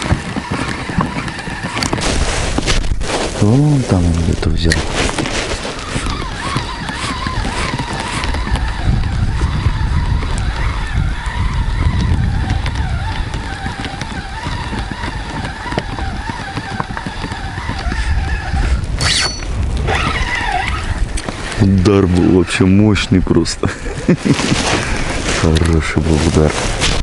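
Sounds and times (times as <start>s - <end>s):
wind rumble on microphone: 0.0s - 27.0s
fishing reel whining: 5.7s - 9.5s.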